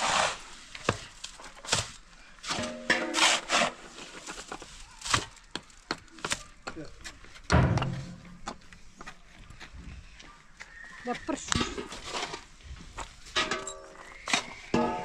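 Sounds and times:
wood knocking and cracking: 5.1 - 8.7.

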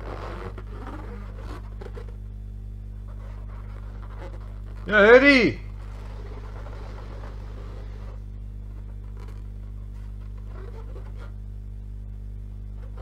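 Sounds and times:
low hum with even tones: 0.0 - 13.0
faint rustles: 2.9 - 11.4.

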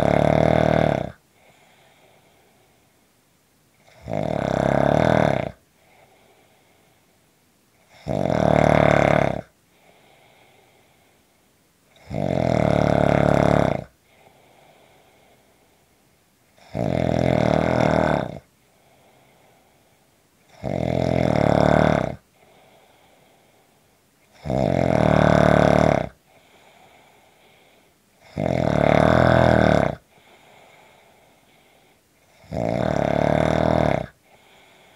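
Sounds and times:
person snoring: 0.0 - 2.7, 3.8 - 6.6, 7.9 - 11.0, 11.9 - 15.6, 16.6 - 19.8, 20.5 - 23.6, 24.3 - 34.9
faint breathing: 1.2 - 3.1, 5.7 - 7.3, 9.6 - 11.6, 13.9 - 16.2, 18.4 - 20.3, 22.2 - 24.2, 26.1 - 28.3, 30.0 - 32.4, 34.0 - 34.9.

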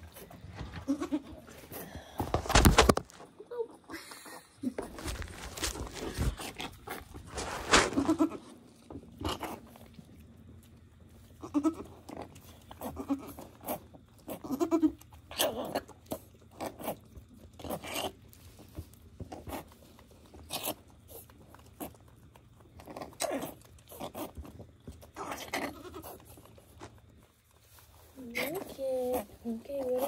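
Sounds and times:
goat bleating: 0.8 - 1.4, 11.4 - 12.0, 25.4 - 26.3
straw rustling and crunching: 4.7 - 11.3, 16.0 - 30.0.

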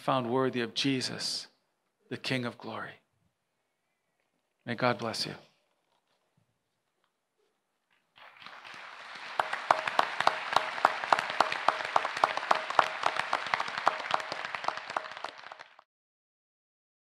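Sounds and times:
audience applauding: 8.2 - 15.8
close hands clapping steadily: 8.2 - 15.8.

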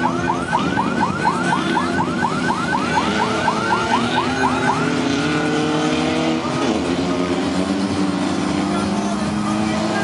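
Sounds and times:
electronic siren yelping: 0.0 - 6.8
engines running: 0.0 - 10.0.

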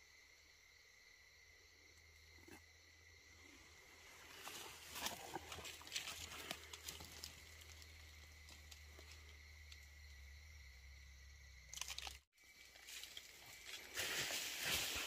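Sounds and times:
rustling and scraping of leaves: 3.9 - 9.8, 11.7 - 15.0.

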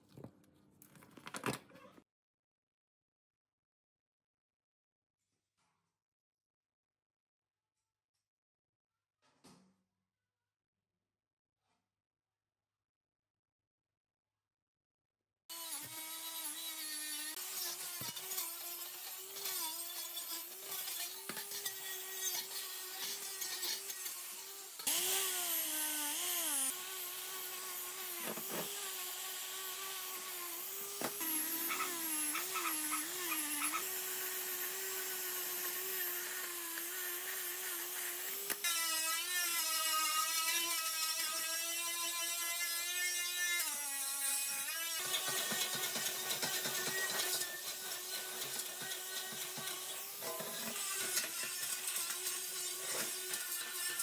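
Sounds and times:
wire wheel grinder scrubbing metal: 15.5 - 38.5, 44.0 - 54.0.

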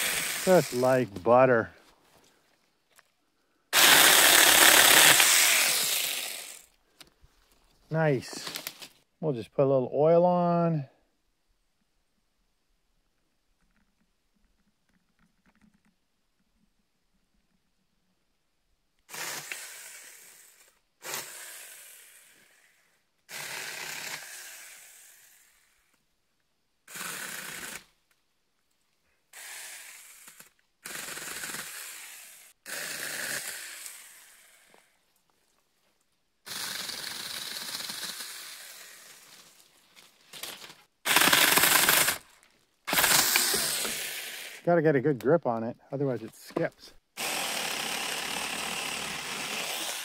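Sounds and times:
electric chainsaw cutting branches: 0.0 - 0.9, 3.8 - 6.7, 19.1 - 22.7, 23.3 - 25.5, 26.9 - 27.9, 29.4 - 34.9, 36.5 - 39.7, 40.4 - 44.6, 47.2 - 50.0.

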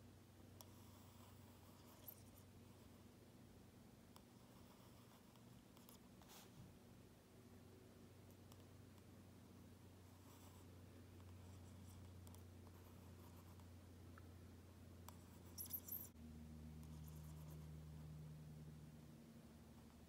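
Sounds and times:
low steady hum: 0.0 - 20.0
pen scratching on card: 0.6 - 3.0, 15.1 - 16.1, 16.8 - 17.7.

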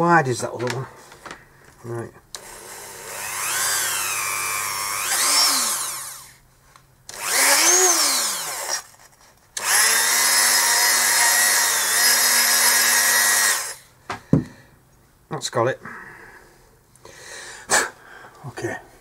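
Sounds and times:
rotary tool whining: 2.3 - 6.4, 7.1 - 13.9.

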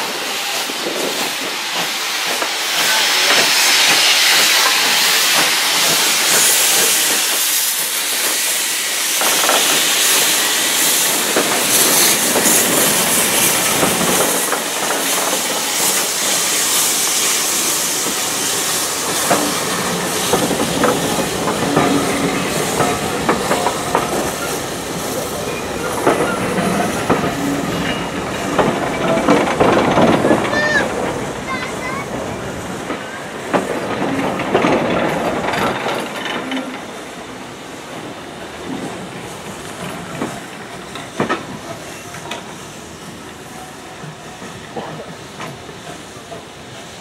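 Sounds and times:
locomotive steam hissing: 0.0 - 47.0
wheels clacking over rail joints: 9.2 - 42.6.

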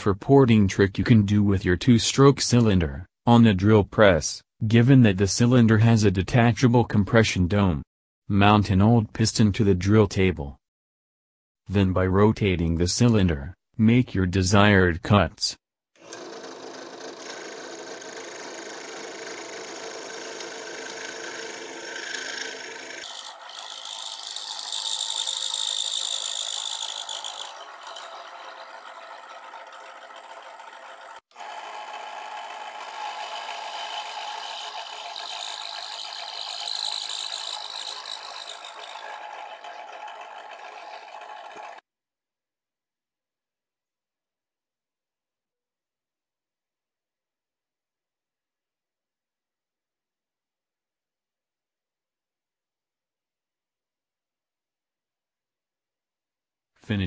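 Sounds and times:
drill press cutting metal: 16.0 - 41.8.

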